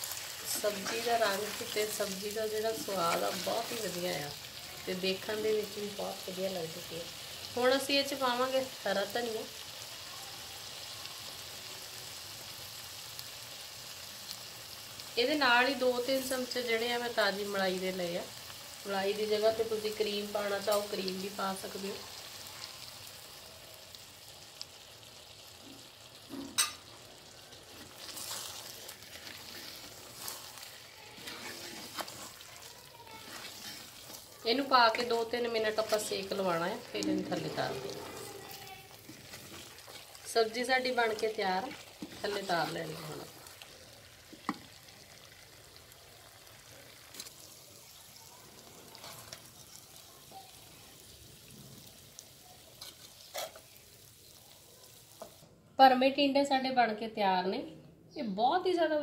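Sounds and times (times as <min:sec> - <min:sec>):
wooden spatula stirring and scraping: 0:00.0 - 0:04.5, 0:27.5 - 0:44.7, 0:48.6 - 0:50.0, 0:52.7 - 0:53.8
food sizzling in clay pot: 0:00.0 - 0:57.0.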